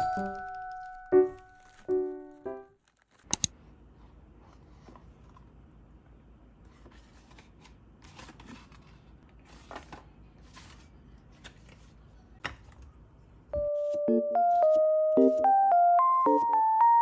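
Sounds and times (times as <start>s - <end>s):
piano music: 0.0s - 2.8s, 13.6s - 17.0s
plastic packaging crinkling: 0.1s - 2.1s, 2.8s - 3.3s.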